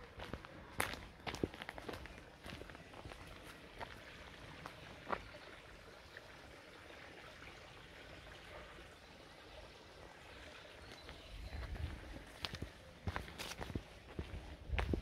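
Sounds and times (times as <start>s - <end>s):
stream trickling: 0.0s - 15.0s.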